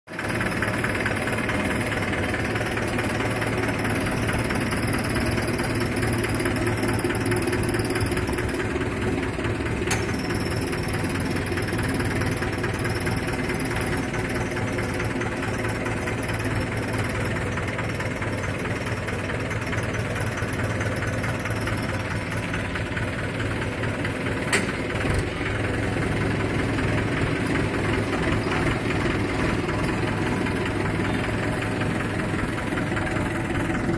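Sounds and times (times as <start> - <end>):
tractor diesel engine idling: 0.1 - 33.9
sharp click: 24.5 - 24.8.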